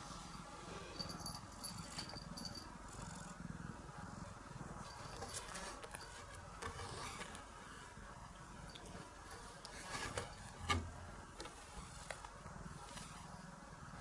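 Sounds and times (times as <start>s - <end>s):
cat purring: 0.1s - 10.5s, 11.1s - 14.0s
collar bell tinkling: 0.3s - 2.8s.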